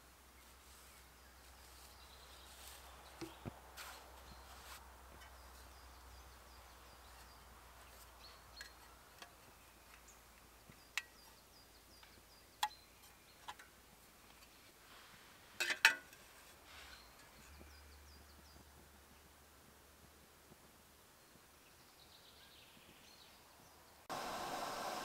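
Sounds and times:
metal tin clanking: 0:15.6 - 0:16.2.

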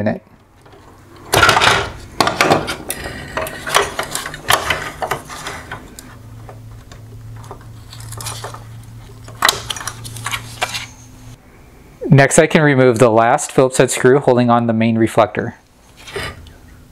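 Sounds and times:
low steady hum: 0:00.0 - 0:16.9
plastic parts clicking and knocking: 0:00.6 - 0:05.8.

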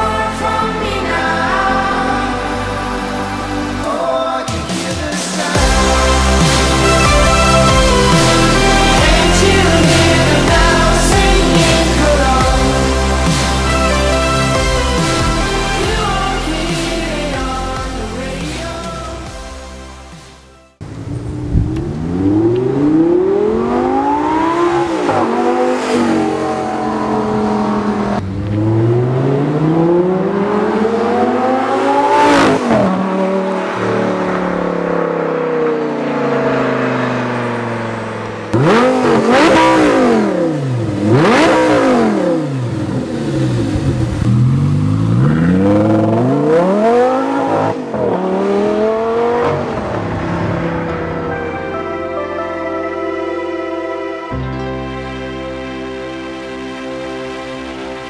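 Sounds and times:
sports car engine revving: 0:20.8 - 0:51.6.

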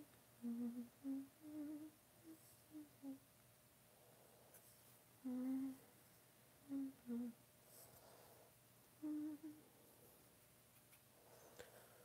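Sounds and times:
woman humming softly: 0:00.0 - 0:03.2, 0:05.2 - 0:05.9, 0:06.6 - 0:07.4, 0:09.0 - 0:09.7.

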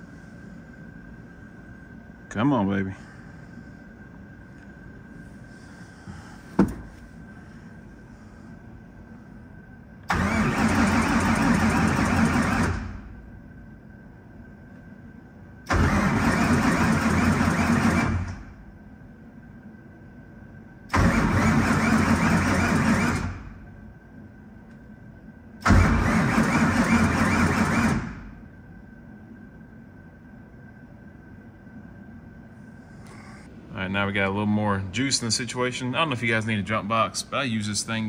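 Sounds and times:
faint steady whine: 0:00.0 - 0:38.0
starter motor cranking engine: 0:10.1 - 0:12.9, 0:15.7 - 0:18.4, 0:20.9 - 0:23.4, 0:25.6 - 0:28.2.

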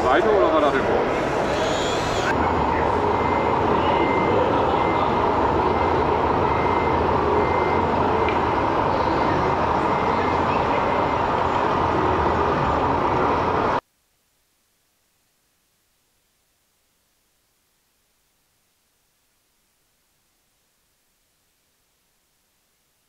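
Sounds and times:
machine and hall noise: 0:00.0 - 0:13.8
high electronic reversing beep: 0:01.2 - 0:12.5.

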